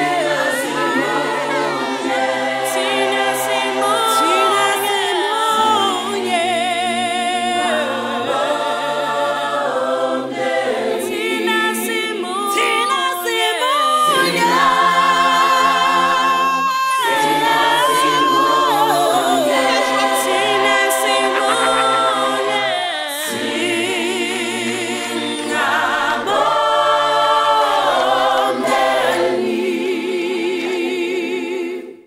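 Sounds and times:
choir singing in harmony: 0.0s - 32.0s
lead voice holding long note: 14.1s - 23.6s.

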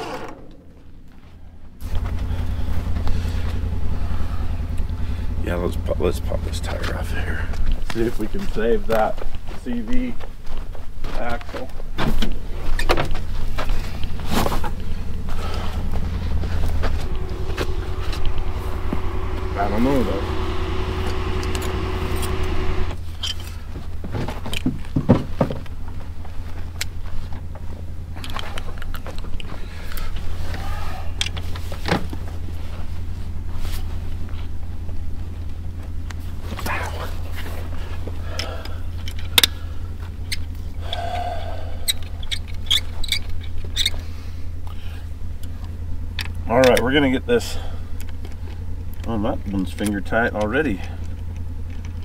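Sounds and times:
steady low hum: 0.0s - 11.0s, 11.8s - 25.0s, 25.6s - 52.0s
vehicle engine idling: 0.0s - 52.0s
higher-pitched running sound: 13.3s - 23.3s.

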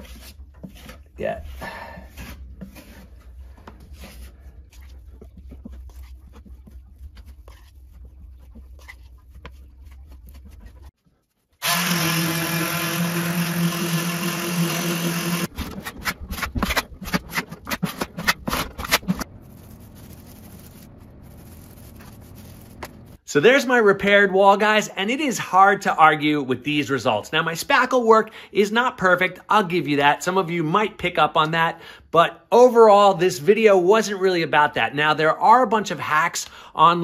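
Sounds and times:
putty knife scraping drywall: 0.0s - 11.0s, 13.2s - 20.7s
paint roller crackling: 5.4s - 23.2s.

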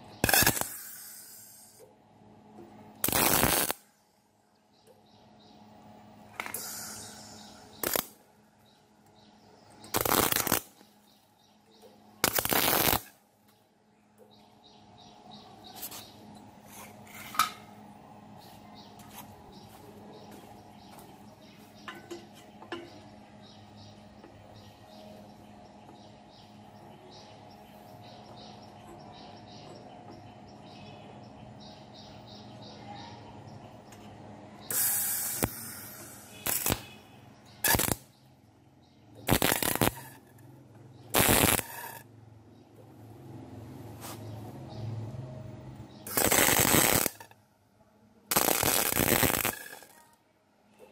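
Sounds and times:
steady low hum: 0.0s - 50.9s
welder arc bursts: 0.2s - 1.8s, 3.0s - 3.9s, 6.4s - 8.2s, 9.9s - 10.8s, 12.2s - 13.2s, 34.7s - 38.1s, 39.2s - 40.3s, 41.1s - 42.0s, 46.0s - 47.3s, 48.3s - 50.0s.

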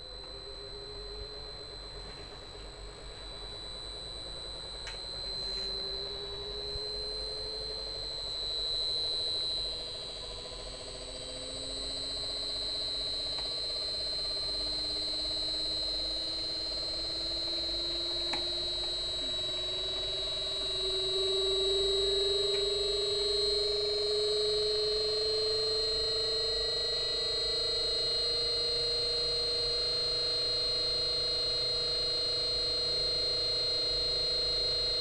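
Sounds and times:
high-pitched switching whine: 0.0s - 35.0s
motor tones rising in pitch: 3.5s - 30.0s.

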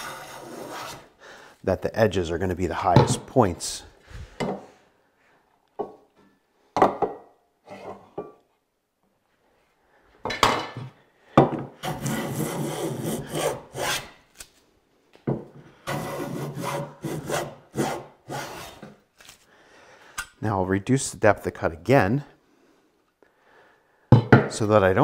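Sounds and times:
hand plane rasping on wood: 11.8s - 14.1s, 15.9s - 18.8s.

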